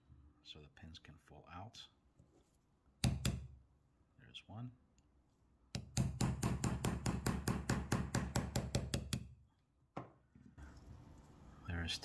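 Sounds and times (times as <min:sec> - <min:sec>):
hammer tapping steel punch: 0:03.0 - 0:03.5, 0:05.7 - 0:09.3.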